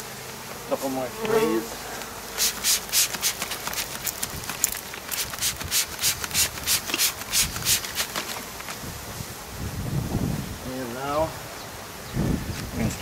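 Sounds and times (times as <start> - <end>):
spray bottle hissing sprays: 2.3 - 8.4.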